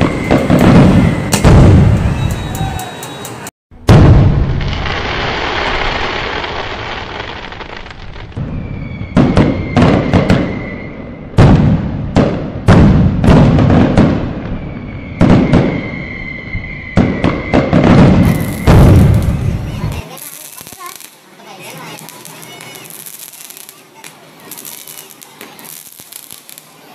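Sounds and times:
fireworks hissing crackle: 0.0 - 3.5, 4.5 - 11.0, 13.7 - 26.9
high whistle: 0.0 - 3.5, 8.4 - 11.3, 14.4 - 18.9
fireworks bangs: 0.0 - 26.9.

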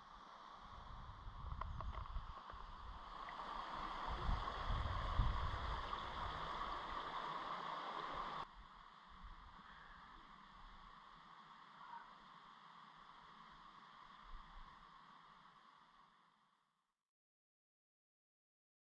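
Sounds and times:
wind buffeting microphone: 1.0 - 2.3, 4.1 - 6.3.

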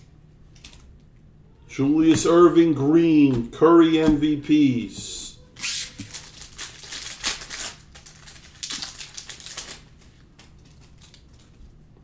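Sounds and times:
wrapper crinkling and tearing: 5.6 - 11.8.

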